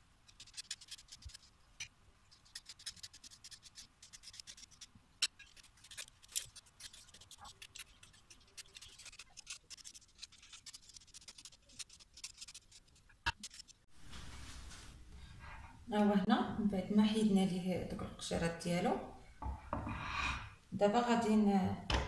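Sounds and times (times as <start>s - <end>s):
peeler rasping orange zest: 0.3s - 1.5s, 2.3s - 13.8s.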